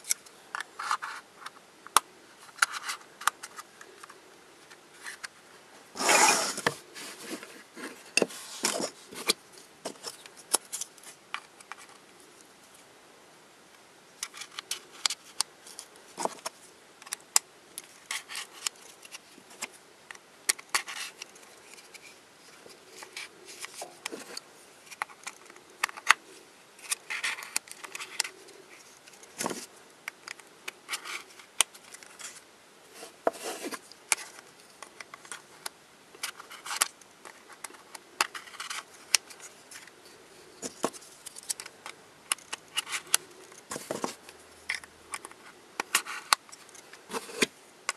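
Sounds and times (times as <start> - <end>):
plastic scraping on plastic: 6.0 - 12.0, 33.0 - 35.4, 40.6 - 47.9.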